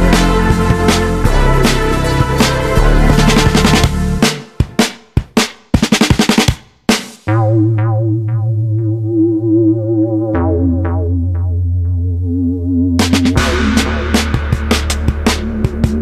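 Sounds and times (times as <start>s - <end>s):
steady bass: 0.0s - 4.4s, 7.3s - 16.0s
wavering synthesizer chord: 7.3s - 13.0s.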